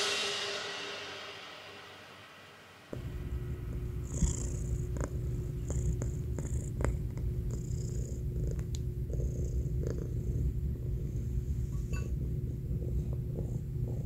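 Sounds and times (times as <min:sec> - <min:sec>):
cat purring: 0:03.0 - 0:14.0.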